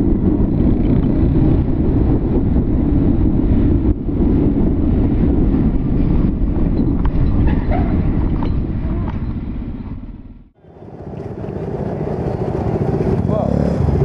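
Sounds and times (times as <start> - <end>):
wind rushing over microphone: 0.0 - 14.0
motorcycle engine running: 8.0 - 14.0.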